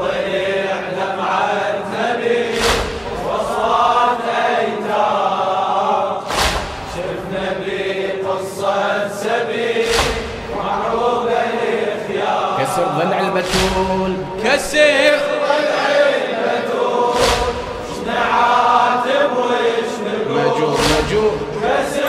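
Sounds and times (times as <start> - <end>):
men chanting in unison: 0.0 - 22.0
crowd chest-beating slaps: 2.0 - 3.8, 6.2 - 7.2, 9.6 - 12.3, 13.4 - 14.3, 16.8 - 19.6, 20.7 - 22.0.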